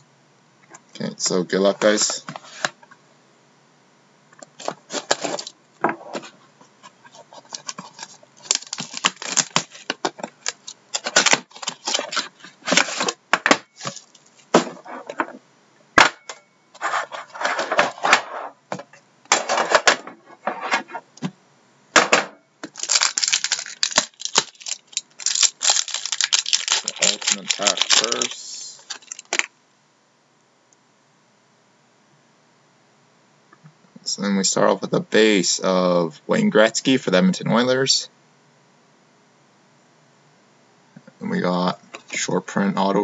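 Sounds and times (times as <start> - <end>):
cardboard scraping and rustling: 2.1 - 2.8, 4.6 - 15.4, 16.8 - 21.0.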